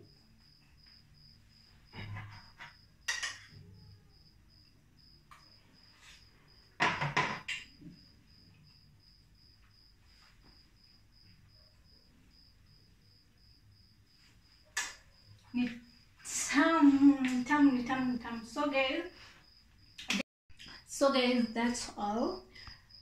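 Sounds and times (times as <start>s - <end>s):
cricket chirping: 0.0s - 23.0s
plate and cutlery clattering: 3.0s - 3.6s.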